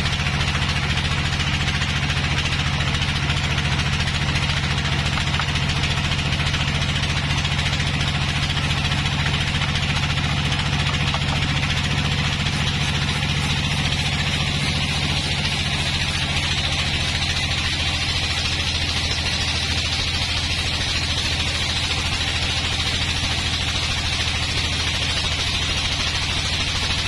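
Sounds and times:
band saw hum and hiss: 8.3s - 27.0s.

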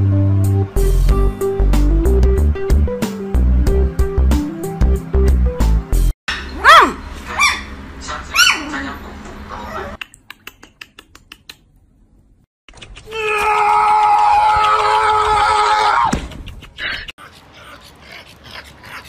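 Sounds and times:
puppy high-pitched cry: 6.3s - 7.7s, 8.3s - 8.7s
puppy yipping: 6.3s - 8.7s.

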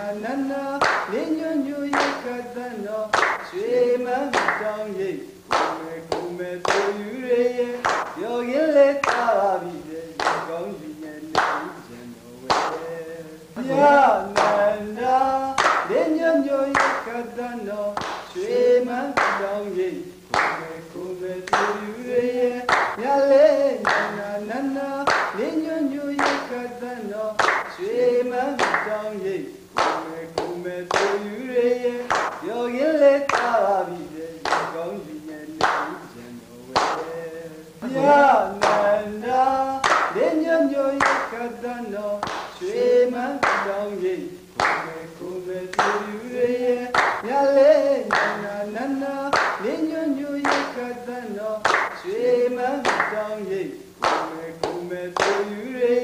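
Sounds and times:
person singing sliding notes: 0.0s - 56.0s
sharp clap-like hit: 0.8s - 1.2s, 1.9s - 2.3s, 3.1s - 3.6s, 4.3s - 4.7s, 5.5s - 7.0s, 7.8s - 8.2s, 10.2s - 10.6s, 11.3s - 11.8s, 12.5s - 12.9s, 15.6s - 16.0s, 16.7s - 17.1s, 18.0s - 18.4s, 20.3s - 20.7s, 22.7s - 23.0s, 23.8s - 24.2s, 25.1s - 25.4s, 26.2s - 26.5s, 27.4s - 27.8s, 28.6s - 29.0s, 29.7s - 31.3s, 32.0s - 32.4s, 35.6s - 36.0s, 36.8s - 37.1s, 38.6s - 38.9s, 39.8s - 40.2s, 42.2s - 42.6s, 43.4s - 43.8s, 44.6s - 44.9s, 46.9s - 47.2s, 48.1s - 48.4s, 49.3s - 49.6s, 50.4s - 50.8s, 51.6s - 52.0s, 52.8s - 53.2s, 54.0s - 55.6s.

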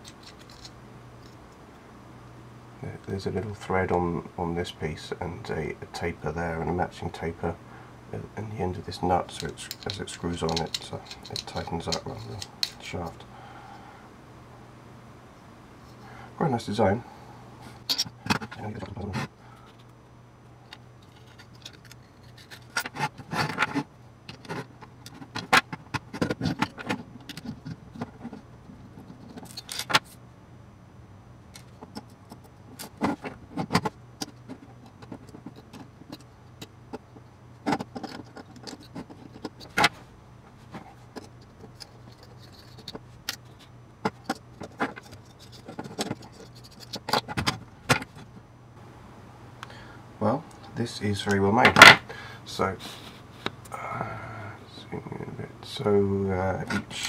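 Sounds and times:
faint low hum: 0.0s - 57.0s
metal parts clinking on wooden desk: 9.3s - 12.8s, 29.3s - 30.1s.

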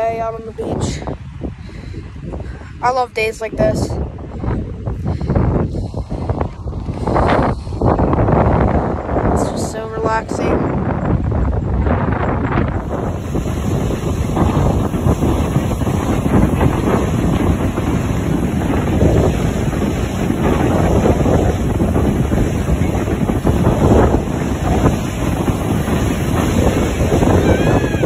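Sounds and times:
wind buffeting microphone: 0.0s - 28.0s
ocean surf crashing: 12.5s - 28.0s.

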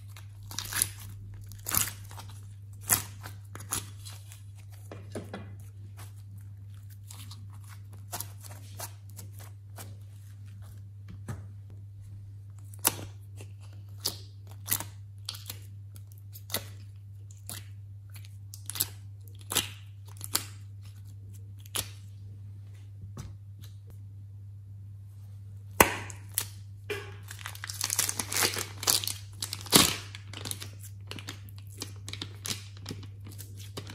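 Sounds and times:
low hum: 21.1s - 29.5s.

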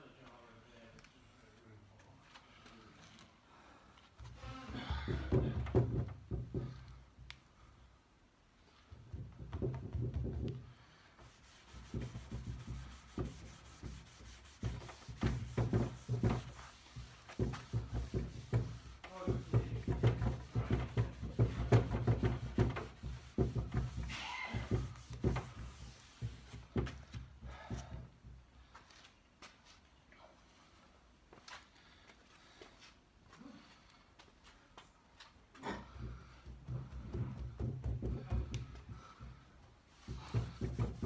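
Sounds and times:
hand rubbing wax into wood: 8.6s - 27.8s, 36.0s - 41.0s.

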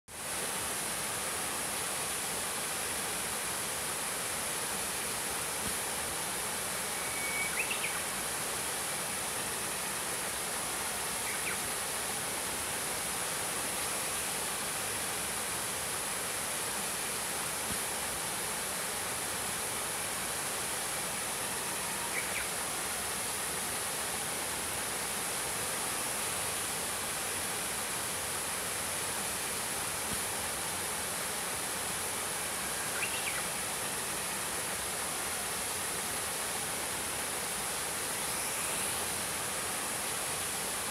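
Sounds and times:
small waterfall splashing over rocks: 0.1s - 40.9s
bird singing faintly: 7.0s - 8.0s, 22.0s - 22.5s, 32.8s - 33.5s.

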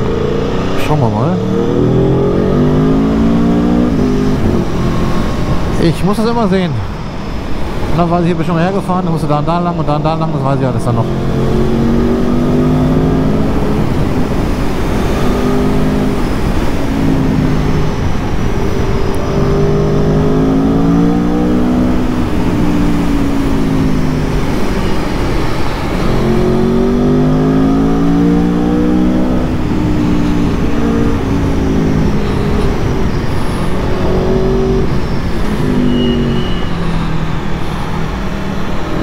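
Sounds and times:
motorcycle engine revving: 0.0s - 5.8s, 11.0s - 39.0s.

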